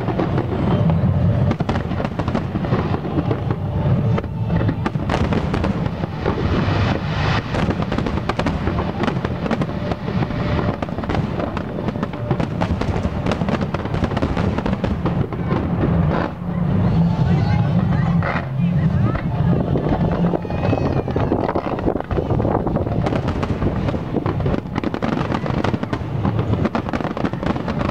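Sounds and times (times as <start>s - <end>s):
fireworks bursting: 0.0s - 27.9s.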